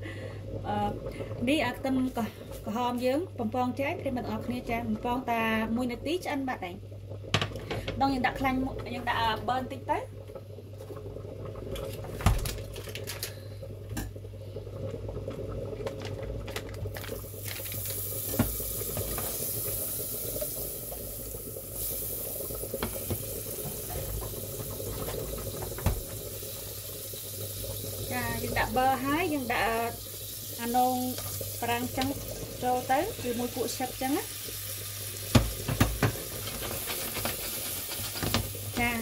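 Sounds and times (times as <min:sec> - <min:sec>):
butter sizzling in saucepan: 0:15.9 - 0:39.0
utensil knocking on pan: 0:35.3 - 0:36.3.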